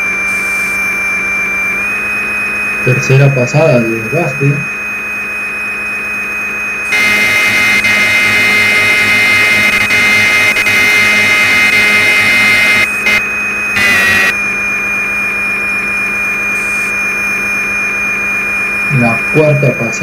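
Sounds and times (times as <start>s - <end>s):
lathe spindle whine: 6.5s - 19.0s.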